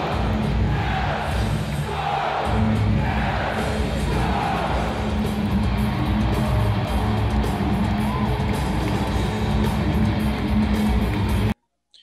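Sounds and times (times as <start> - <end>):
loud music with guitar: 2.4 - 11.6.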